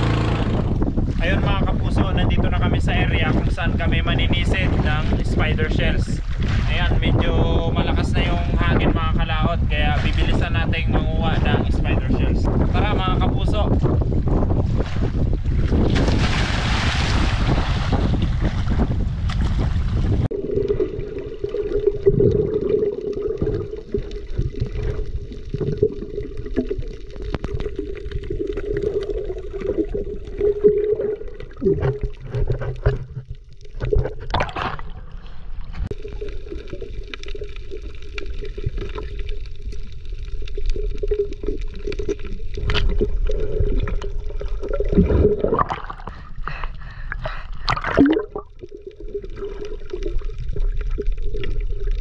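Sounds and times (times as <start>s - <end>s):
water gurgling and bubbling: 0.0s - 52.0s
wind: 0.0s - 52.0s
waves: 1.1s - 7.3s, 14.8s - 21.8s
steady underwater hum: 20.2s - 52.0s.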